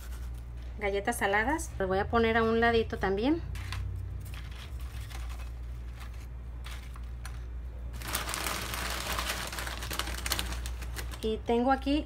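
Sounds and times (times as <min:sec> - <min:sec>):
plastic chip bag crinkling: 0:03.7 - 0:11.5.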